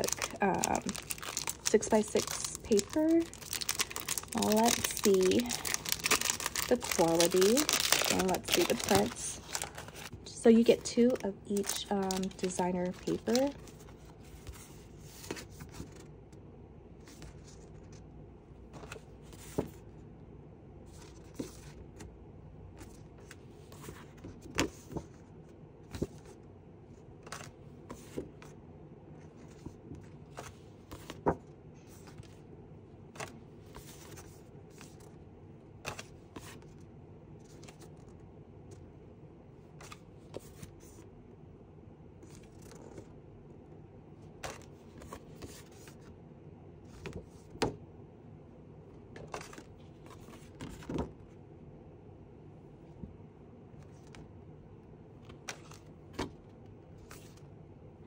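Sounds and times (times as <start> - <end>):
paper rustling: 0.0 - 16.1, 29.3 - 32.4, 49.2 - 51.2.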